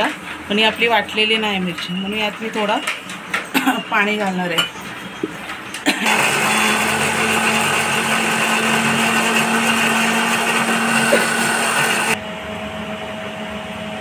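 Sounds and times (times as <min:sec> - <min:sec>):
mixer grinder running: 0:05.9 - 0:13.9.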